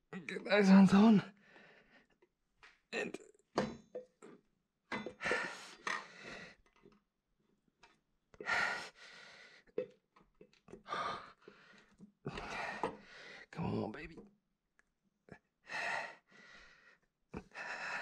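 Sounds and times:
man breathing hard and straining: 5.1 - 6.7, 8.4 - 9.8, 10.8 - 13.5, 15.6 - 18.0.

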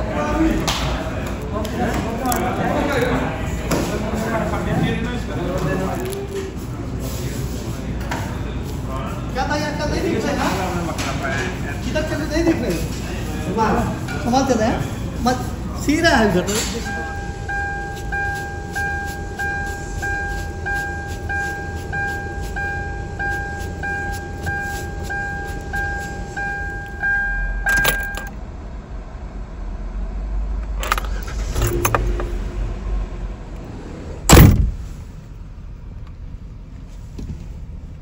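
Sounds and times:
car warning chime beeping: 16.8 - 28.3
car door slamming: 34.3 - 34.8.

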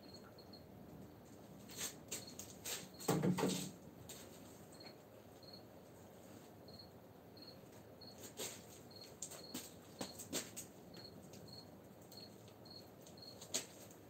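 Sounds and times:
cricket chirping: 0.0 - 0.7, 4.7 - 5.7, 6.7 - 8.3, 8.9 - 10.3, 10.9 - 13.6.

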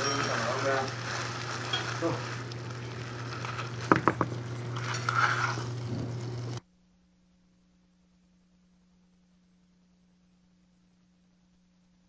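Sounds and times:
food sizzling in a frying pan: 0.0 - 6.6
low electrical hum: 0.0 - 12.0
utensil knocking on pan: 3.9 - 4.3.

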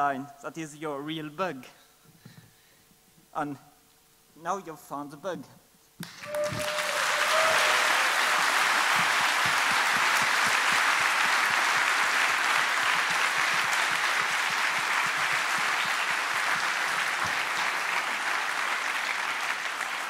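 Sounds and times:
audience applauding: 6.0 - 20.0.

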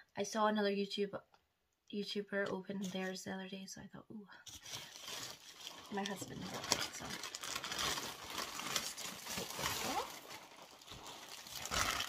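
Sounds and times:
plastic bag rustling and crinkling: 4.5 - 12.0.

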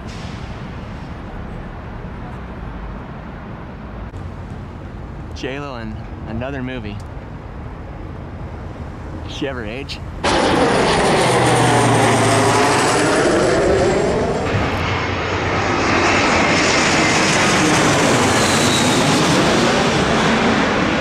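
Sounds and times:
jet airliner passing overhead: 7.9 - 21.0.

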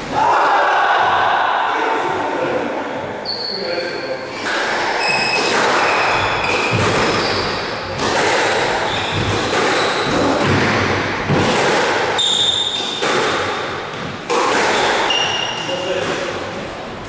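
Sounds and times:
shoes squeaking on wooden floor: 5.0 - 7.6, 8.8 - 10.3
squash ball knocks: 12.8 - 15.1.

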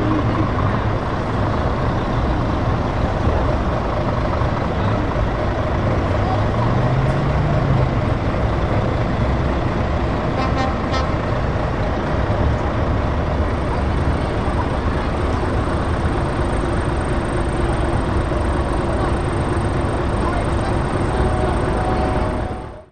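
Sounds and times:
truck diesel engines running: 0.0 - 22.9
truck horn toot: 10.4 - 11.2.

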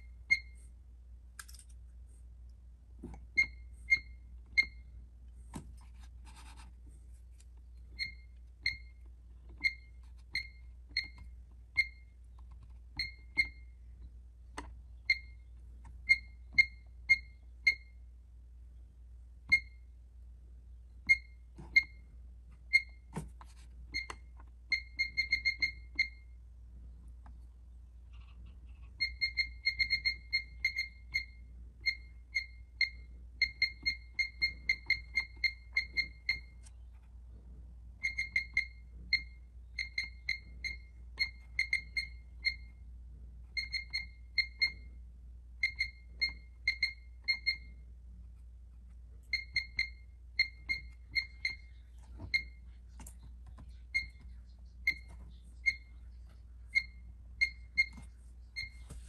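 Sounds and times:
alarm keypad beeps: 0.0 - 0.6, 3.3 - 4.9, 7.9 - 9.0, 9.6 - 12.2, 13.0 - 13.8, 15.0 - 18.0, 19.5 - 19.8, 21.1 - 22.1, 22.7 - 23.1, 23.9 - 26.4, 29.0 - 36.6, 38.0 - 42.8, 43.5 - 45.0, 45.6 - 47.8, 49.3 - 52.6, 53.9 - 56.0, 56.7 - 59.0.

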